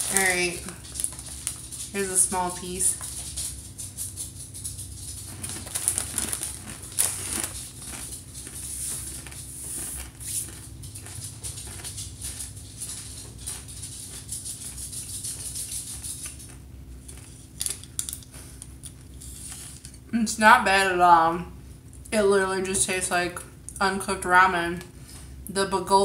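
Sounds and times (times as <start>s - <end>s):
crunching dry noodle snack: 3.0s - 18.9s.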